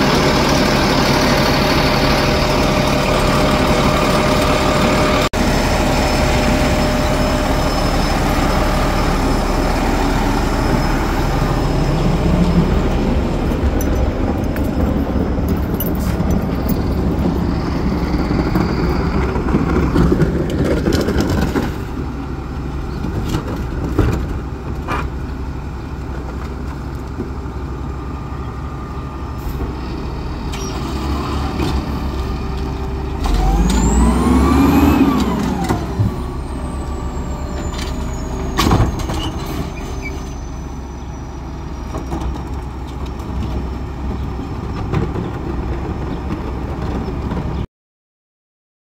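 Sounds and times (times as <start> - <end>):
garbage truck engine and hydraulics: 0.0 - 47.7.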